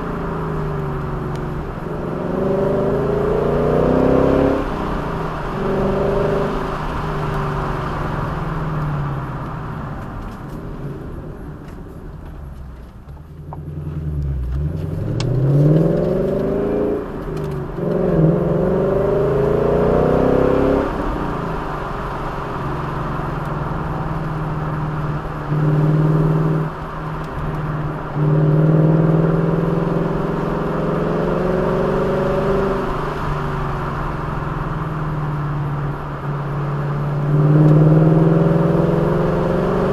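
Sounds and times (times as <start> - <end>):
engine revving: 0.0 - 8.4, 13.6 - 34.2, 37.0 - 39.9
road noise: 0.0 - 39.9.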